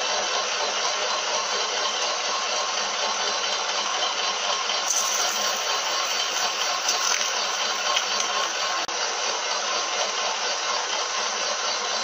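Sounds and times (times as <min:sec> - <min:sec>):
abrasive paper hissing on spinning gear: 0:04.8 - 0:08.9.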